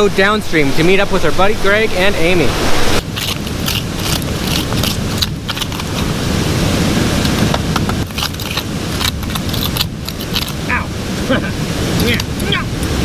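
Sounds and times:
waterfall rushing: 0.0 - 13.0
hand tool scraping bedrock and gravel: 3.0 - 6.2, 7.2 - 10.6.

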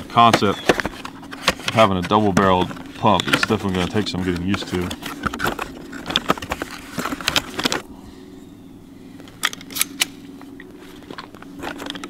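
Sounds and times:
shotgun shells clicking and rustling: 0.1 - 7.8, 9.2 - 12.0
shells pushed into shotgun magazine: 9.4 - 10.2.

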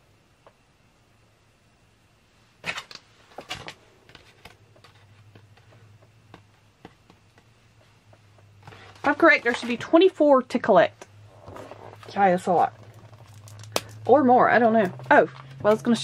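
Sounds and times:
faint clicks and taps: 4.1 - 9.0
plastic wrapper crinkling: 11.9 - 16.0.

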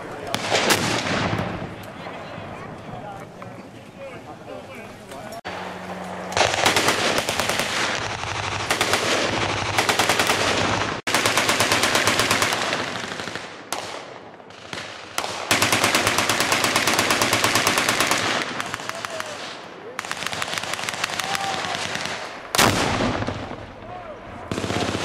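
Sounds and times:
machine-gun fire: 6.3 - 23.6, 24.5 - 25.0.

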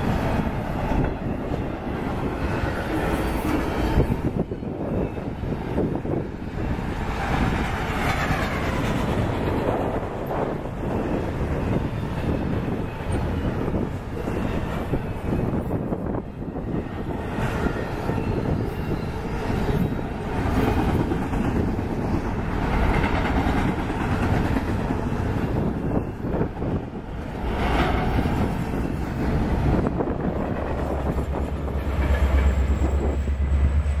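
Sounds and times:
locomotive engine drone: 0.0 - 34.0
train wheels on rails: 0.0 - 34.0.

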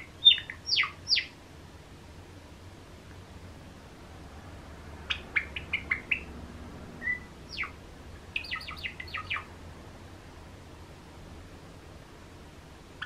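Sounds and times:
sparrow singing chip notes: 0.0 - 1.4, 7.0 - 7.8, 8.4 - 9.5.

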